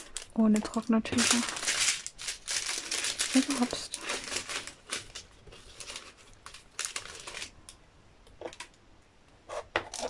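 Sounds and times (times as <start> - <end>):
plastic bags crinkling: 0.0 - 7.7.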